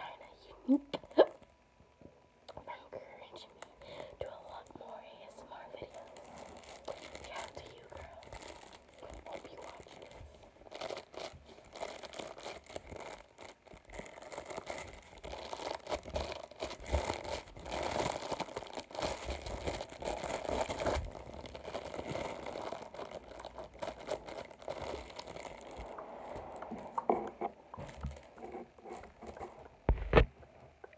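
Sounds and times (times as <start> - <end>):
stiff sheet crinkling: 5.8 - 30.4.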